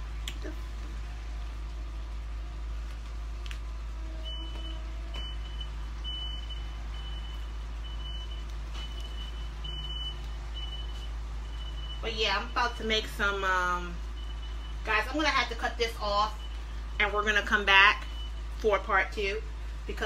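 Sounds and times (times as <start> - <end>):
low hum: 0.0 - 18.6.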